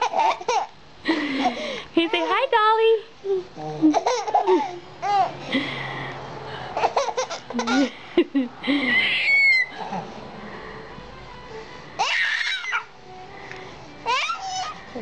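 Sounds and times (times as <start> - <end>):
baby cooing and laughing: 0.0 - 0.7, 3.2 - 5.4, 6.8 - 8.0, 8.7 - 10.2, 12.0 - 12.9, 14.0 - 14.9
baby squealing: 8.8 - 9.8, 12.0 - 12.9, 14.0 - 14.8.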